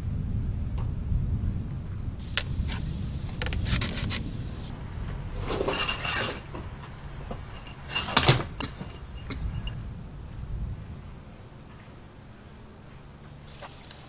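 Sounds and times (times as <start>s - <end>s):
sharp clicks: 2.3s - 4.4s
wire spokes clinking and rattling: 3.4s - 9.8s.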